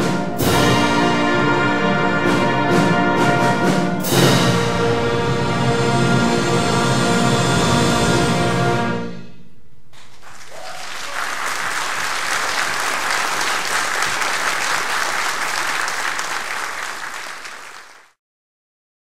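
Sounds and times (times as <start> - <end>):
audience applauding: 10.0 - 18.2.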